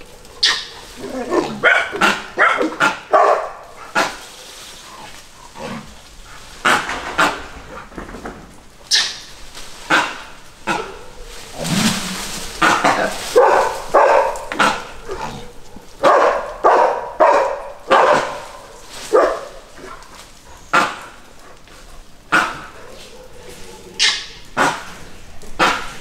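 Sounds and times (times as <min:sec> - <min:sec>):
dogs barking: 0:00.0 - 0:05.2, 0:09.9 - 0:11.4, 0:12.6 - 0:26.0.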